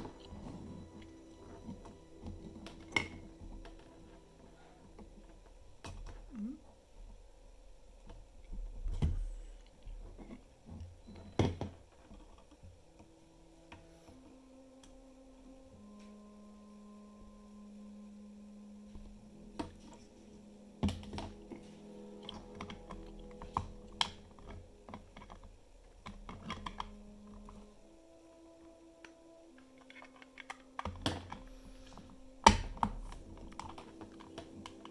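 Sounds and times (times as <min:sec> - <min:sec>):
soft background music: 0:00.0 - 0:34.9
plastic parts clicking together: 0:29.0 - 0:34.9.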